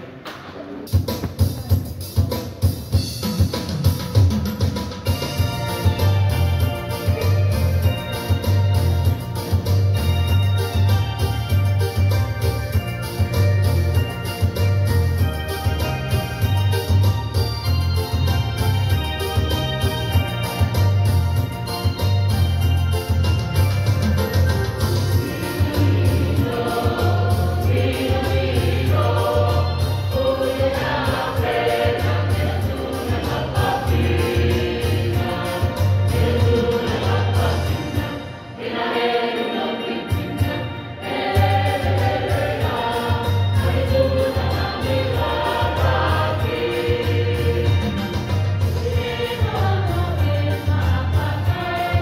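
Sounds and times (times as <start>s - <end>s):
choir singing in parts: 25.1s - 52.0s.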